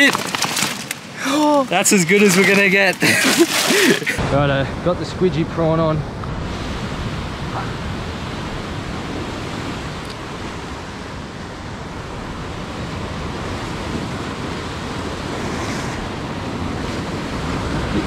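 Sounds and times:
wind on microphone: 4.2s - 18.0s
ocean surf breaking on rocks: 6.3s - 18.0s.

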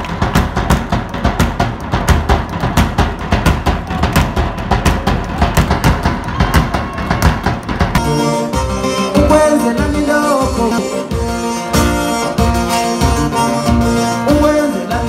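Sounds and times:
large drum struck fast: 0.0s - 8.1s.

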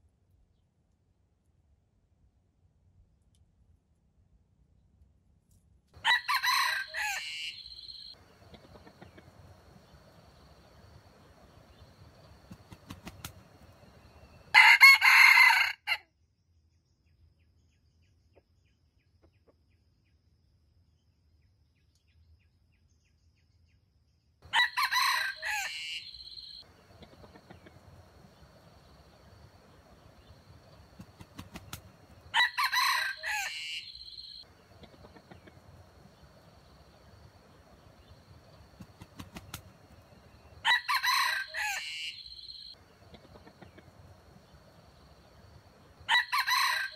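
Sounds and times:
roosters crowing: 6.0s - 16.0s, 24.5s - 46.9s.

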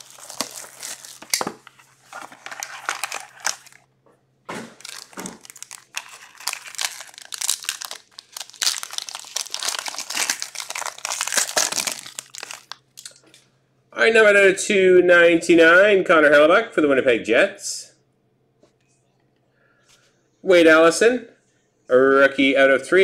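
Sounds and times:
plastic shrink wrap crinkling: 0.0s - 3.9s, 4.7s - 13.2s.

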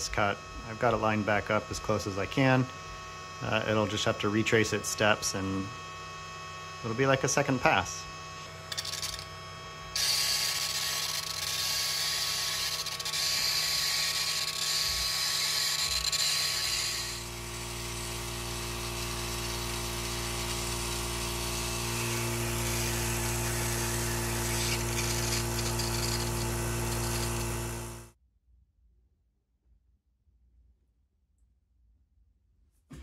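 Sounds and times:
machine hum: 0.0s - 28.2s.

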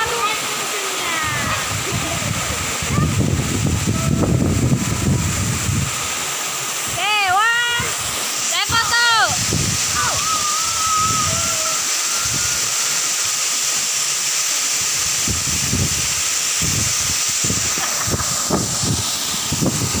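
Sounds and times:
waterfall rushing: 0.0s - 20.0s
long high squeal: 10.0s - 13.4s.

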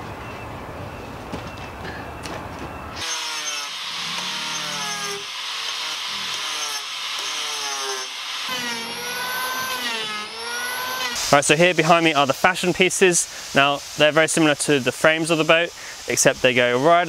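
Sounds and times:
angle grinder cutting wood: 3.0s - 11.5s.

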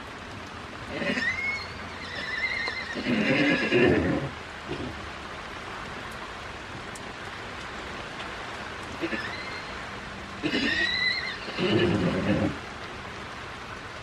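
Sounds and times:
horse neighing: 0.9s - 4.9s, 9.0s - 9.7s, 10.4s - 12.6s.

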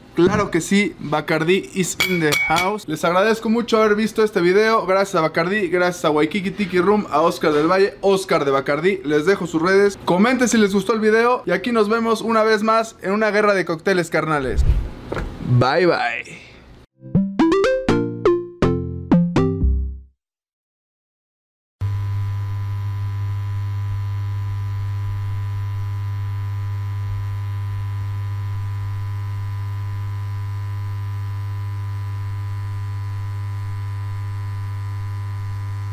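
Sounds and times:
synthesizer logo jingle: 17.0s - 19.9s.

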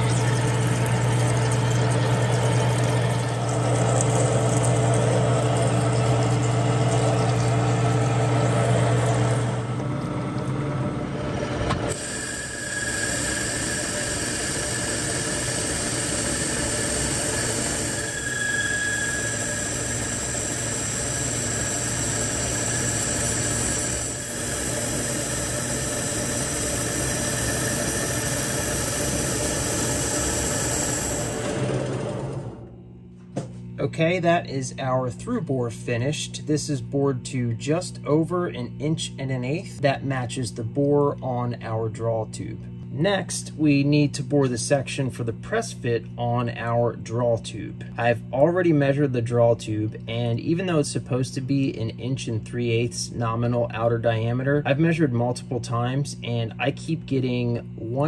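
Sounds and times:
metal lathe humming: 0.0s - 32.8s
high whine of cutting: 0.0s - 58.0s.

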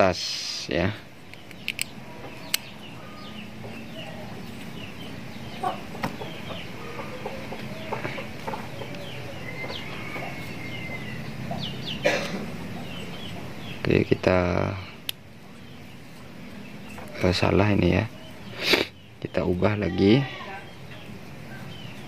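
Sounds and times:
light metallic clicks: 1.3s - 2.7s
chickens clucking: 2.0s - 13.8s.

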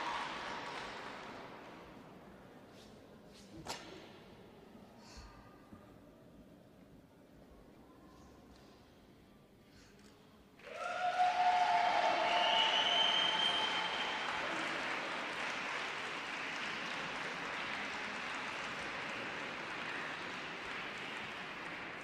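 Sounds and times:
audience applauding: 0.0s - 1.4s, 10.6s - 22.0s.

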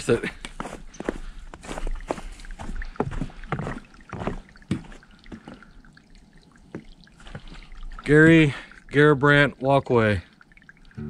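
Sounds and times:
footsteps on trail: 0.0s - 5.7s, 6.7s - 7.7s.

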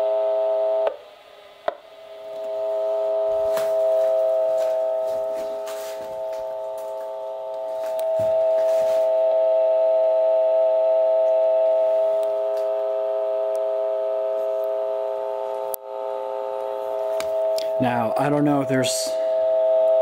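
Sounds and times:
telephone dial tone through speaker: 2.3s - 10.2s.

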